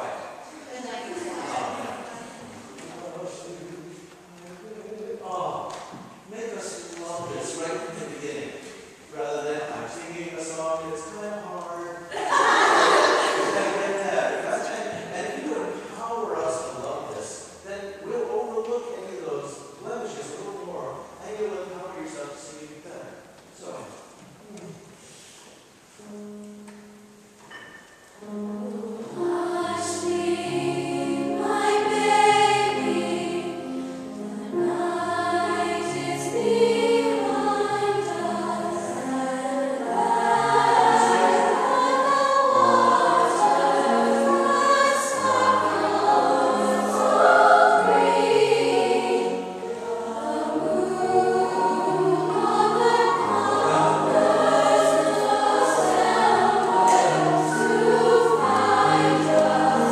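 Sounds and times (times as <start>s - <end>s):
girls' choir singing: 0.0s - 3.4s, 12.1s - 15.0s, 28.2s - 59.9s
piano accompaniment: 26.0s - 59.9s.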